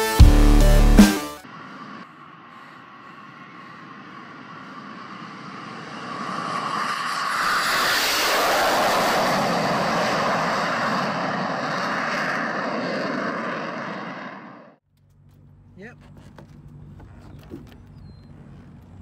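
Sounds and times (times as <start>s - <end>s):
jet engines at takeoff: 1.4s - 14.8s.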